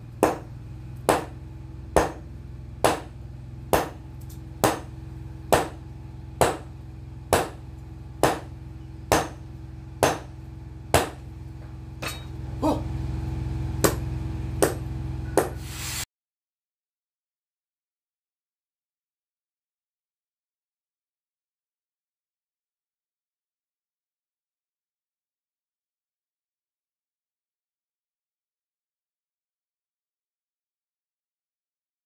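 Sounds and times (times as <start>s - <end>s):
steady low hum: 0.0s - 16.1s
sledgehammer blows on hot steel: 13.8s - 16.0s.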